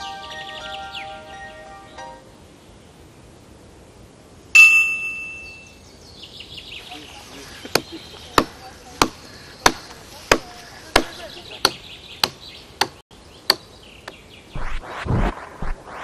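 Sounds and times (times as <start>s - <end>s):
bright metallic ding: 4.6s - 5.7s
faint high chirping: 4.6s - 8.2s.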